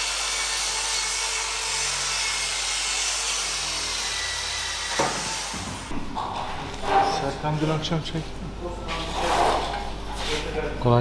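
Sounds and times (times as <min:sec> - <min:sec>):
power tool on sheet metal: 0:00.0 - 0:05.9.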